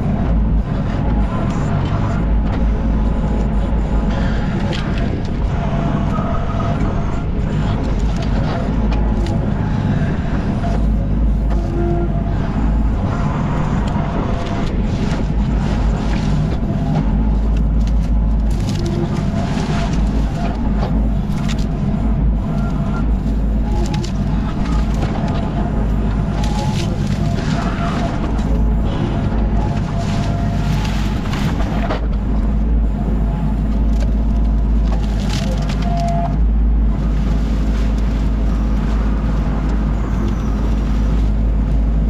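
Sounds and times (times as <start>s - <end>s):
excavator diesel engine running: 0.0s - 42.0s
hydraulics whining: 0.0s - 42.0s.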